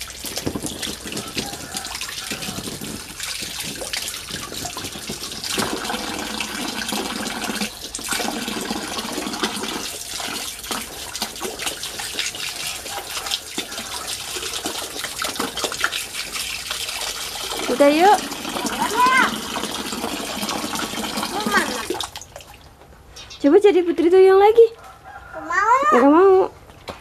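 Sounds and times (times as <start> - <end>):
water running from pipe into pool: 0.0 - 22.7
water splashing on hands: 0.0 - 22.7.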